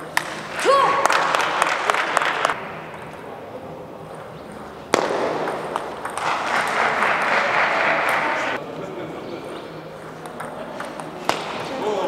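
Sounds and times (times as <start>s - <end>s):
spectators clapping and calling out: 0.6s - 2.6s, 6.2s - 8.6s.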